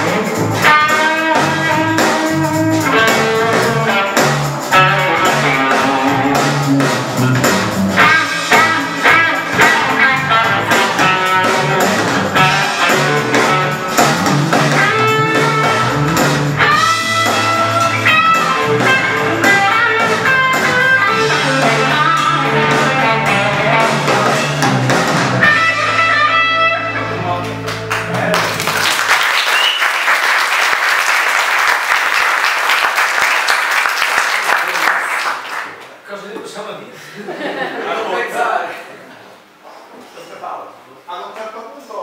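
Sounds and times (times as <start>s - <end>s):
electric guitar solo: 0.0s - 24.8s, 25.4s - 27.9s
sustained low bass notes: 9.6s - 28.6s.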